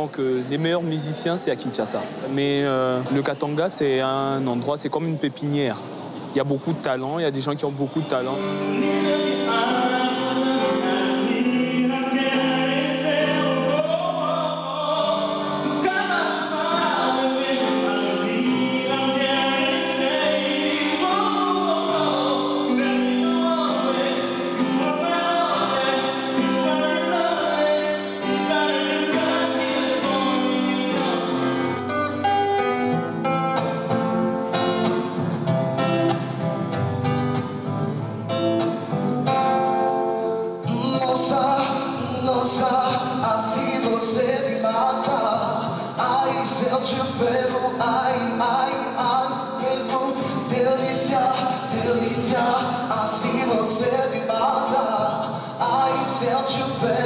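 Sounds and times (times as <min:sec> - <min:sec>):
acoustic guitar strummed and plucked: 0:05.8 - 0:57.0
man singing: 0:06.4 - 0:32.2, 0:40.6 - 0:57.0.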